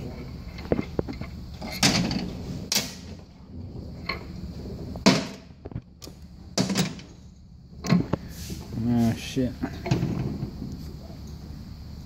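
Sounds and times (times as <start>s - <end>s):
metallic knocks and clanks: 0.0s - 3.2s, 6.6s - 7.2s.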